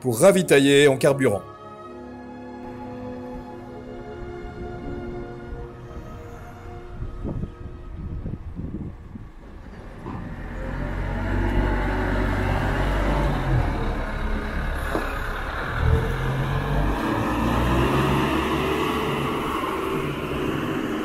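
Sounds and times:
diesel engine running under load: 8.8 - 21.0.

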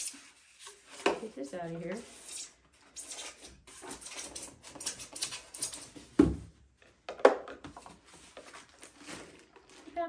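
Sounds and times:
packing material rustling: 8.2 - 10.0.

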